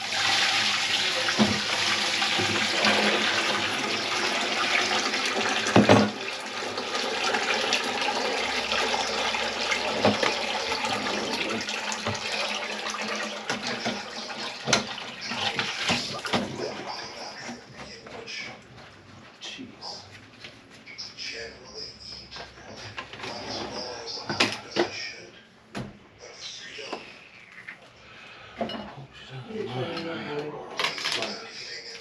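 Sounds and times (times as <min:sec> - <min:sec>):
water running into sink: 0:00.0 - 0:17.4.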